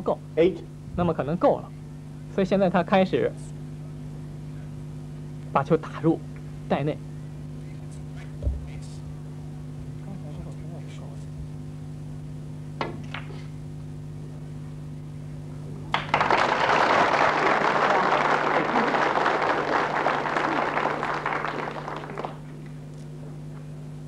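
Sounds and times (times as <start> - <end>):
audience applause: 15.9 - 22.6.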